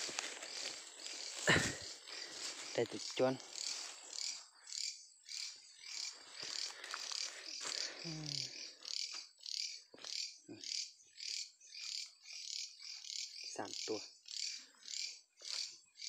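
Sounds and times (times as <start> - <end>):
high-pitched animal chirping: 3.6 - 15.7.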